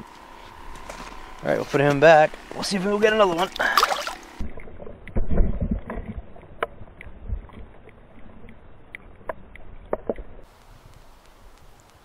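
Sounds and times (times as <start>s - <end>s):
underwater disturbance and thumps: 3.4s - 10.4s
faint clicks: 5.9s - 12.0s.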